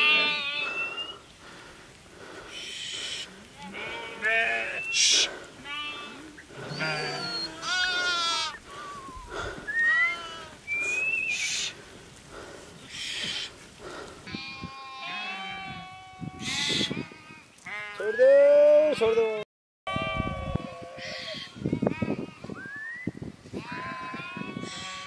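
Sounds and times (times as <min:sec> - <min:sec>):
sheep bleating: 0:00.0 - 0:00.9, 0:03.6 - 0:08.6, 0:14.3 - 0:18.2, 0:23.6 - 0:25.0
short hissing sounds: 0:10.8 - 0:11.8.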